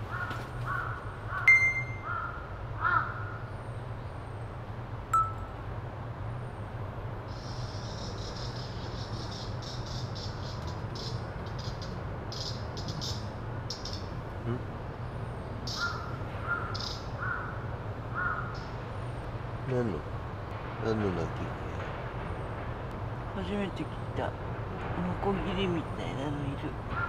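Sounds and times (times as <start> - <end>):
bird cawing: 0.0 - 3.5, 15.6 - 18.8.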